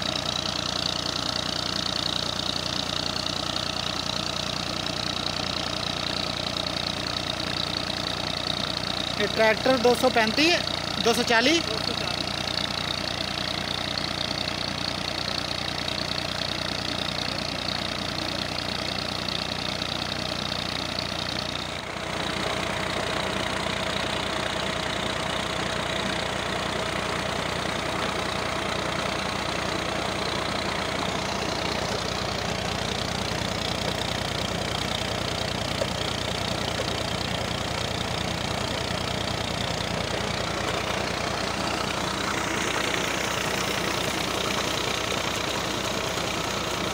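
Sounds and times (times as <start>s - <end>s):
tractor diesel engine running: 0.0s - 46.9s.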